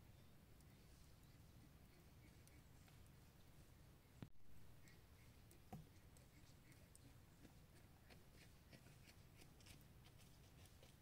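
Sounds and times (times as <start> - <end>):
faint forest ambience: 0.0 - 11.0
soft ticks: 4.9 - 7.1.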